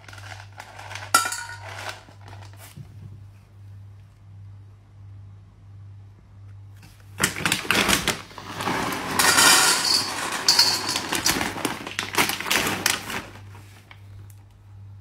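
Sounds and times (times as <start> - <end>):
kibble rattling into metal bowl: 0.0 - 2.5, 7.2 - 13.4.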